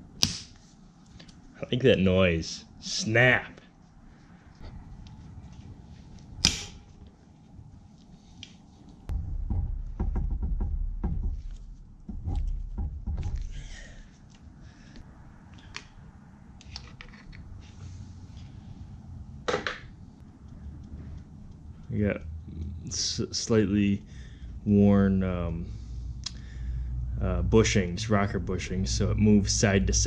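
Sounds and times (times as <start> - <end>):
sharp click: 6.4 - 6.8
low rumbling and knocking: 9.1 - 14.0.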